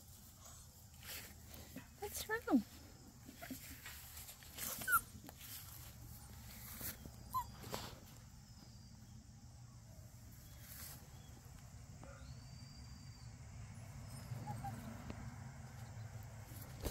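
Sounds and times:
puppies moving on grass: 0.0s - 8.7s, 10.3s - 11.7s, 14.4s - 16.9s
faint puppy squeaks: 4.5s - 5.8s, 6.6s - 8.0s, 13.8s - 15.1s.

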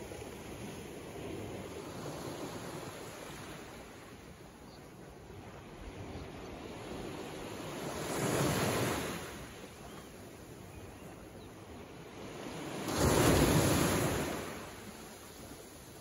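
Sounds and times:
waves washing on rocky shore: 12.8s - 15.8s.

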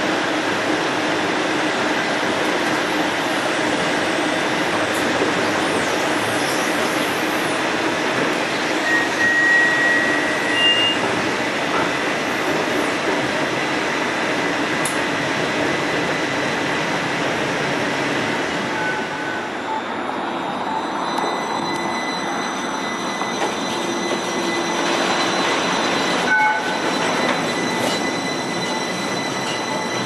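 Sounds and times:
streetcar rolling rumble: 0.0s - 30.0s
thin high wheel squeals: 8.7s - 11.1s, 21.0s - 30.0s.

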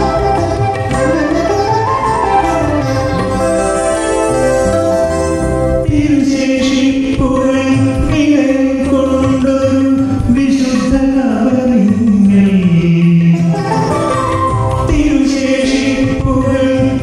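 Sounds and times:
instrumental accompaniment: 0.0s - 17.0s
man singing long notes: 4.3s - 17.0s.

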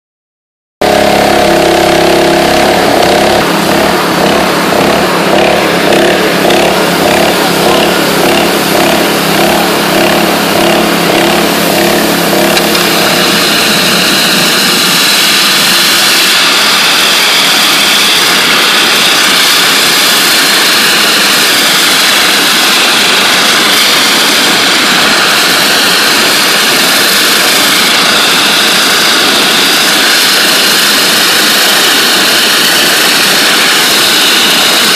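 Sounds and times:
wavering hum: 0.8s - 26.7s
high-pressure water jet hiss: 1.0s - 34.9s.

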